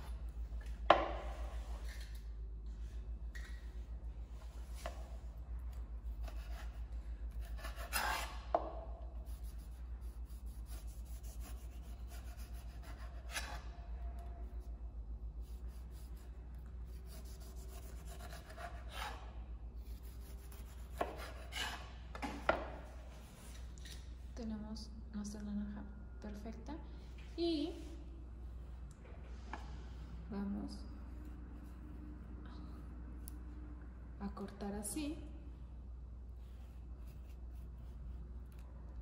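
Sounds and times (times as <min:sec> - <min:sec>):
steady low hum: 0:00.0 - 0:39.0
knife rasping through orange rind: 0:06.0 - 0:08.5, 0:09.2 - 0:13.8, 0:15.4 - 0:22.0.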